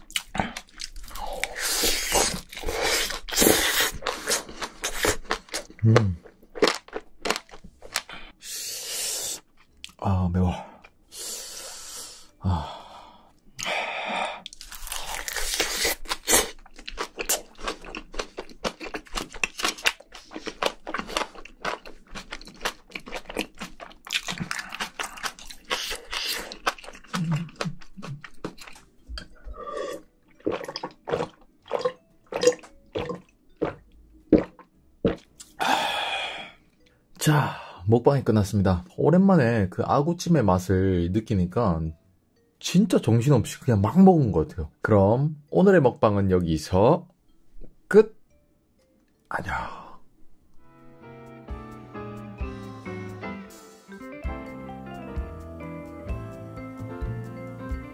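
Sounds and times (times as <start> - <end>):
eating sounds: 0.0 - 10.0, 13.6 - 36.8
swallowing water: 29.4 - 35.5.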